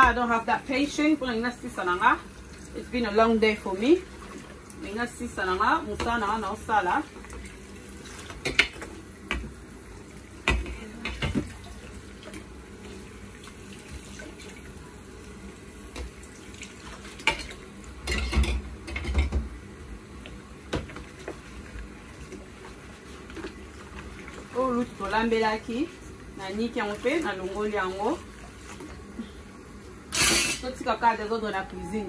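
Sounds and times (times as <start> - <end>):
pans clanking against steel sink: 17.2 - 19.5, 30.1 - 30.8.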